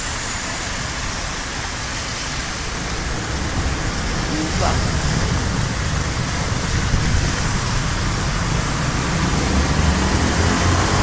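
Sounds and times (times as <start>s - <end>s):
steady rain falling: 0.0s - 11.0s
low rumble: 1.9s - 9.9s.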